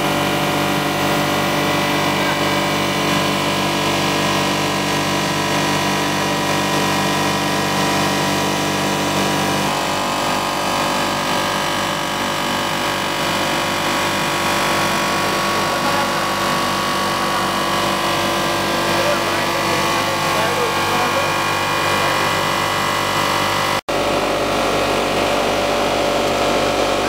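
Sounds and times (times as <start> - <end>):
machine hum with steady tones: 0.0 - 27.0.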